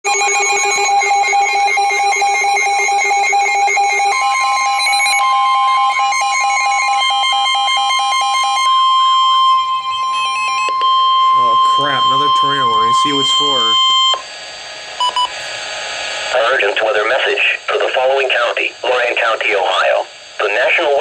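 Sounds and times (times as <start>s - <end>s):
steady high alert tone: 0.1s - 14.2s
rapidly pulsing electronic beeps: 0.1s - 14.3s.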